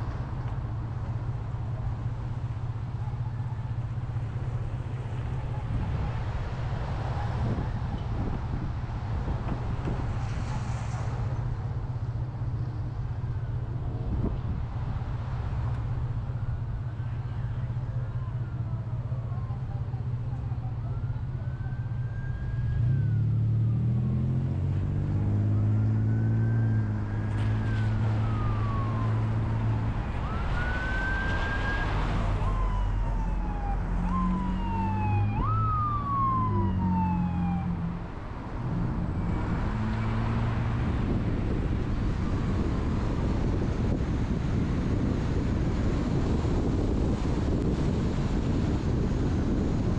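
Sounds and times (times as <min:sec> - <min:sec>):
road and engine rumble: 0:00.0 - 0:49.9
siren wailing: 0:20.6 - 0:24.2, 0:25.2 - 0:40.8.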